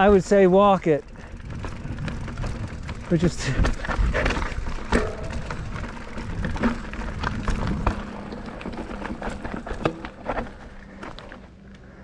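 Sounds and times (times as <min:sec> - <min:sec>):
bike knocks and rattles: 0:00.0 - 0:11.5
low rumble: 0:03.8 - 0:10.9.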